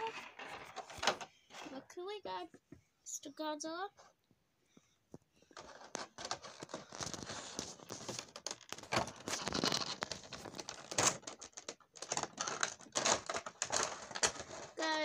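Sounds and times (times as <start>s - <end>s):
plastic packaging crinkling: 5.6s - 15.0s.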